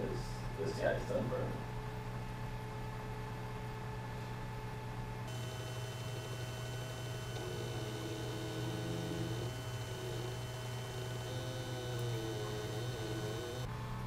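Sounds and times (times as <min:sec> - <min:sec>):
steady electrical hum: 0:00.0 - 0:14.0
stepper motors whining: 0:05.3 - 0:13.7.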